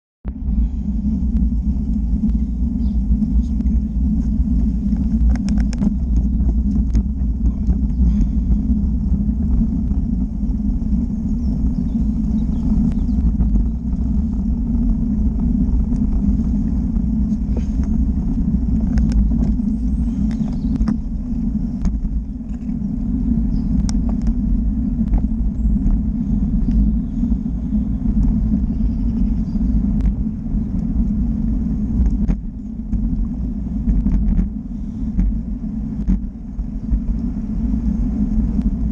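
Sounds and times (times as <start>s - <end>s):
vehicle rumble with road noise: 0.2s - 38.9s
sharp clicks and knocks: 5.0s - 8.0s.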